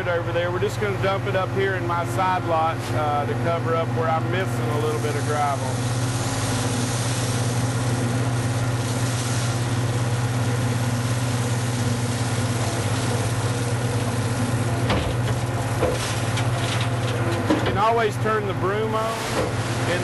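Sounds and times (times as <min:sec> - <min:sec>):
loader engine humming: 0:00.0 - 0:20.0.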